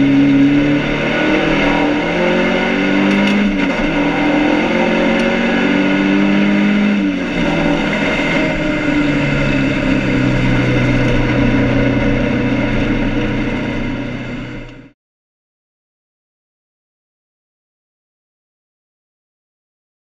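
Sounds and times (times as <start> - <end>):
race car engine running: 0.0 - 14.9.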